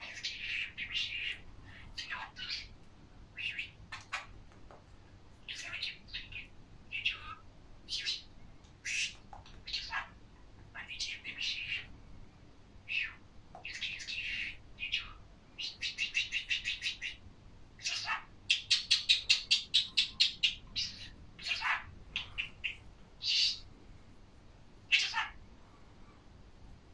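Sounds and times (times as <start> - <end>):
budgerigar chirping: 0.0 - 2.7, 3.4 - 4.3, 5.5 - 10.2, 10.8 - 11.9, 12.9 - 17.2, 17.8 - 23.6, 24.9 - 25.4.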